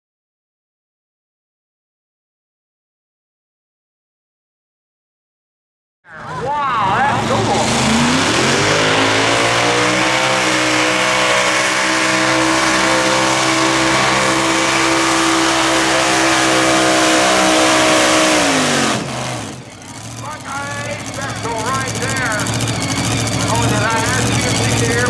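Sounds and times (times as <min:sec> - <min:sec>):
tractor engine at full throttle: 0:06.1 - 0:25.0.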